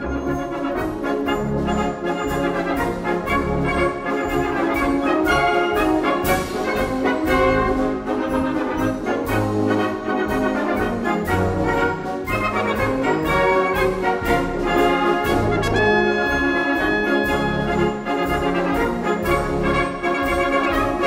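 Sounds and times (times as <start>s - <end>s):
wind band playing a march: 0.0s - 21.0s.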